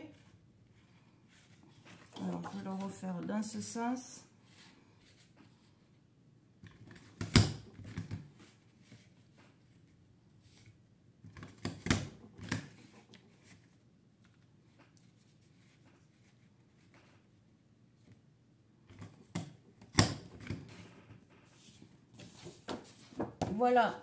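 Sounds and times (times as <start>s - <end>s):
paper rustling: 20.5s - 23.7s.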